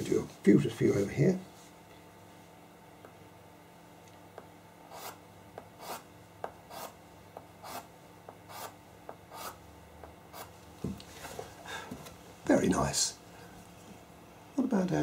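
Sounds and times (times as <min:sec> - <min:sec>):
pencil scratching on paper: 0:04.9 - 0:05.2, 0:05.8 - 0:06.1, 0:06.7 - 0:07.0, 0:07.6 - 0:07.9, 0:08.5 - 0:09.6, 0:10.3 - 0:10.5.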